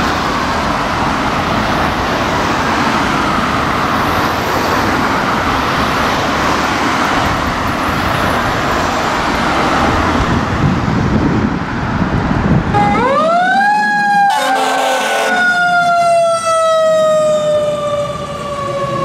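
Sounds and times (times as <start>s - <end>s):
fire truck siren wailing: 0.0s - 10.2s, 12.6s - 19.0s
road traffic noise: 0.0s - 19.0s
horn blast: 14.3s - 15.4s.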